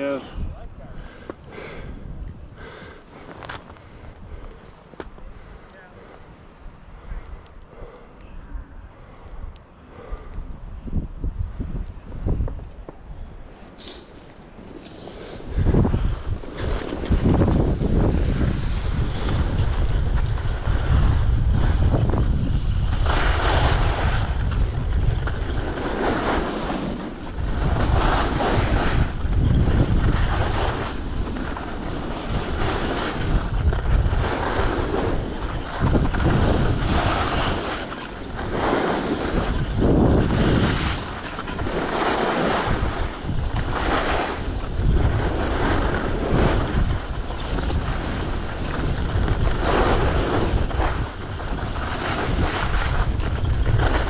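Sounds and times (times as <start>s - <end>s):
wind noise on microphone: 0.0s - 5.6s, 6.5s - 14.2s, 14.8s - 54.0s
skis scraping on snow: 12.2s - 54.0s.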